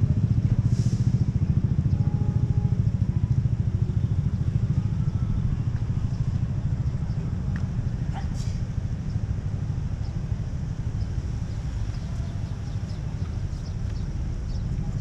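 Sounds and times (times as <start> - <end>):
vehicle engine idling: 0.0 - 15.0.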